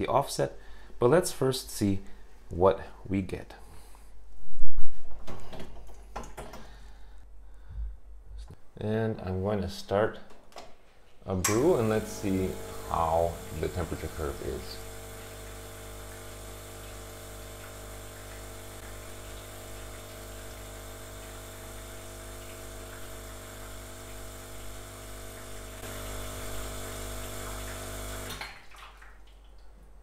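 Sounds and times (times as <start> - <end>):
espresso machine pump running: 11.5 - 28.4
hot water hissing: 11.5 - 28.4.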